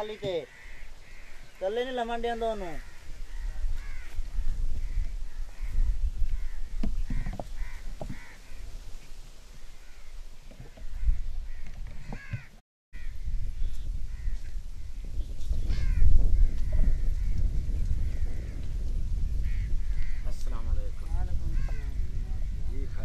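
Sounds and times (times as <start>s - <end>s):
crows cawing: 0.0s - 8.8s, 9.7s - 13.3s, 14.1s - 14.9s, 15.6s - 18.7s, 19.4s - 20.4s, 21.4s - 22.3s
low rumble on microphone: 13.0s - 23.0s.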